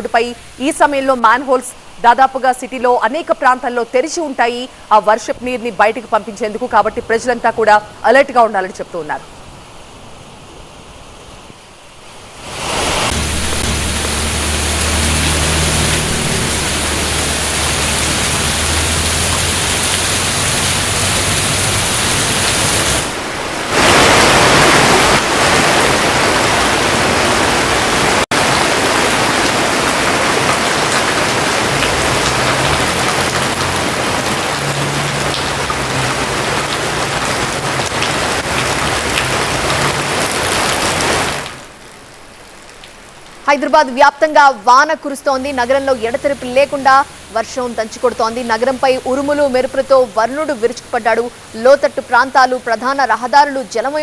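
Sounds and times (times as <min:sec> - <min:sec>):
heavy rain pouring: 0:00.0 - 0:08.5, 0:09.3 - 0:54.0
low hum: 0:12.9 - 0:19.6.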